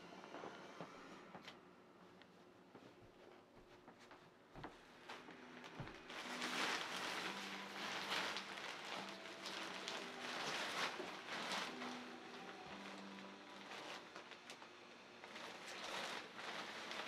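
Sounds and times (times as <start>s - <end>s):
blower fan humming: 0.0s - 17.0s
nylon fabric rustling: 3.6s - 14.6s, 15.2s - 17.0s.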